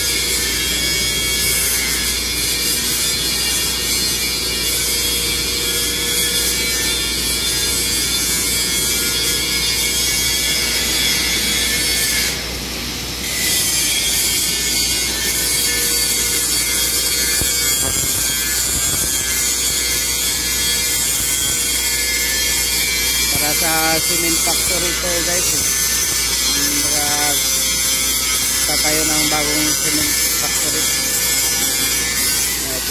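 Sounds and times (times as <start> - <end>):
angle grinder grinding steel: 13.2 - 32.9.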